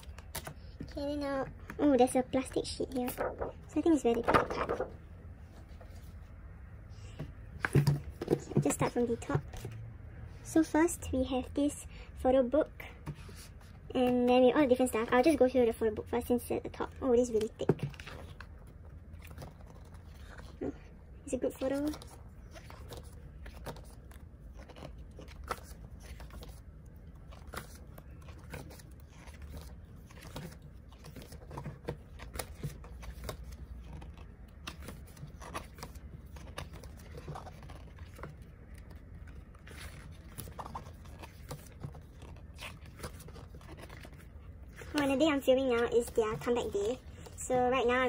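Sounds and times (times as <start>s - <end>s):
book pages turning: 0.0s - 6.4s, 7.0s - 9.9s, 12.4s - 48.0s.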